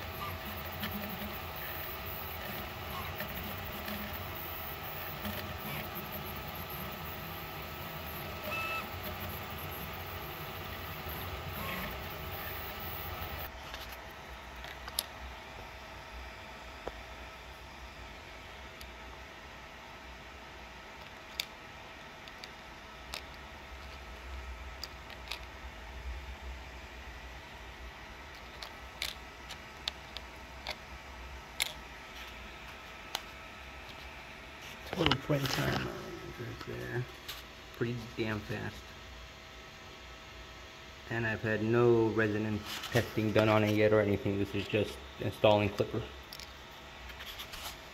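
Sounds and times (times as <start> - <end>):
stepper motors whirring: 0.0 - 13.5
faint machine hum: 0.0 - 47.9
fan hiss: 29.0 - 47.9.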